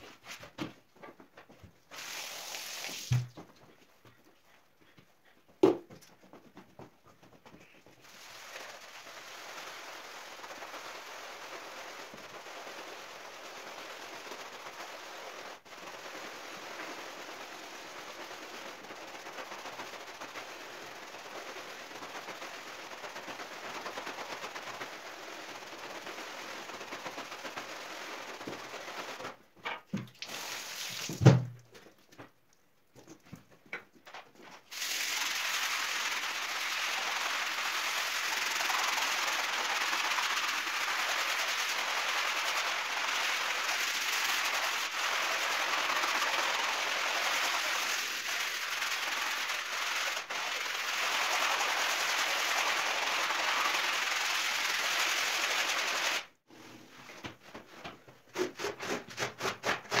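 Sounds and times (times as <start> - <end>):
brushes scrubbing wet rug: 7.6 - 29.4, 34.7 - 56.2.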